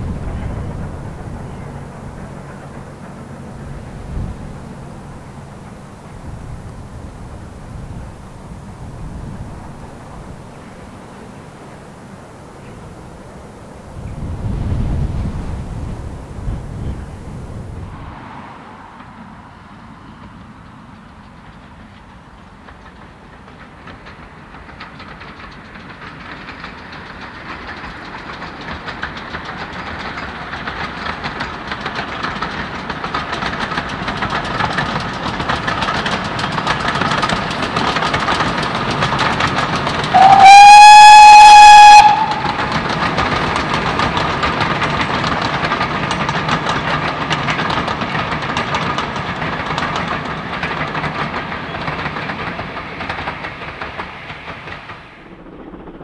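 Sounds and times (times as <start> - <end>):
steam train running: 0.0 - 56.0
steam whistle: 40.1 - 43.4.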